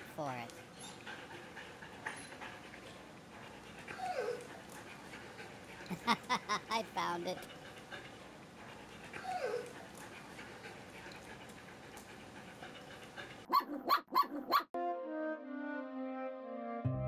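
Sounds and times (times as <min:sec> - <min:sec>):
dog whining: 0:03.8 - 0:04.6, 0:09.1 - 0:09.9
dog barking: 0:13.5 - 0:14.7
music: 0:14.8 - 0:17.0.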